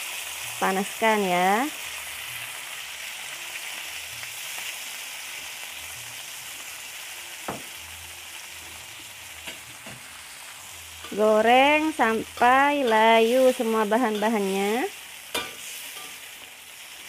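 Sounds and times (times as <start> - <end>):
vegetables sizzling in hot oil: 0.0 - 17.0
metal spatula clinking on wok: 15.3 - 16.3.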